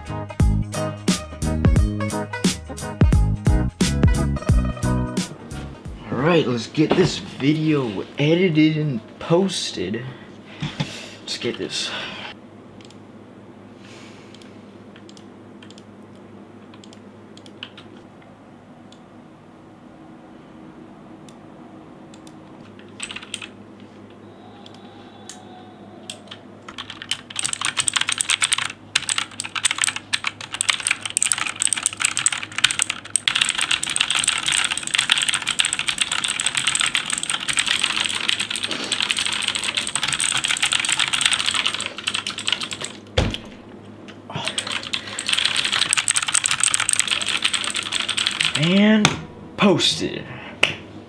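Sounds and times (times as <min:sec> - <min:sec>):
dull thump: 0:06.9 - 0:07.3
fast typing on keyboard: 0:17.6 - 0:17.9, 0:22.7 - 0:23.5, 0:26.2 - 0:43.0, 0:44.3 - 0:48.8.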